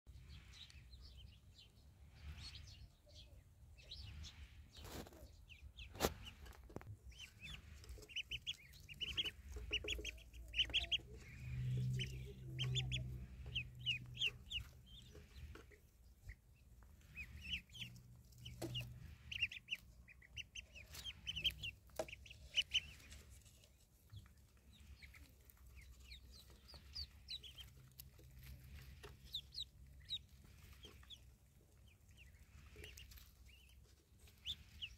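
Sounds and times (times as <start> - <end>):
ducklings peeping: 0.1 - 34.9
low hum: 6.2 - 33.5.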